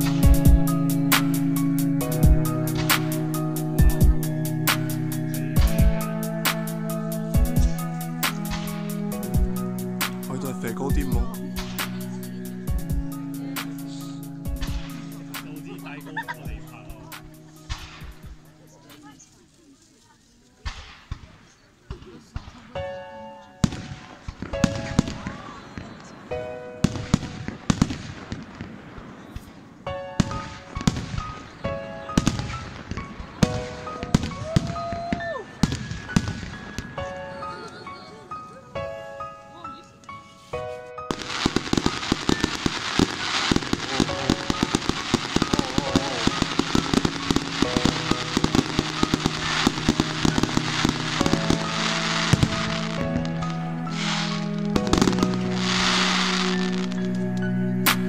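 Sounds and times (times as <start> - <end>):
fireworks crackling pops: 0.0 - 22.9, 23.6 - 37.8, 40.0 - 58.0
background music sustained notes: 0.0 - 58.0
firework shells bursting: 2.6 - 3.3, 41.1 - 57.2.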